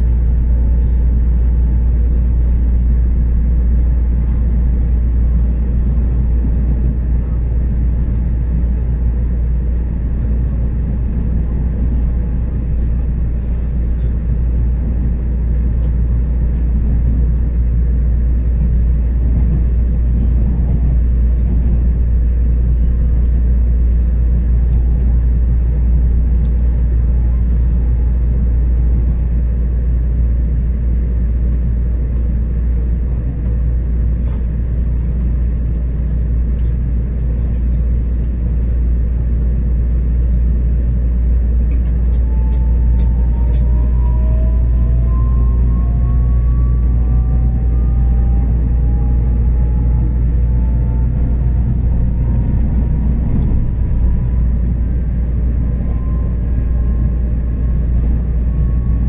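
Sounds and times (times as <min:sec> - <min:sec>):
train rumbling on board: 0:00.0 - 0:59.0.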